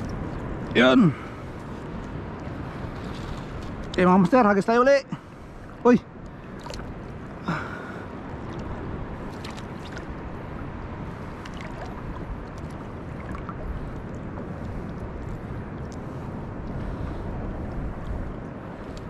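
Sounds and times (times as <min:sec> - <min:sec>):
wind noise: 0:00.0 - 0:19.0
sea water washing: 0:05.1 - 0:19.0.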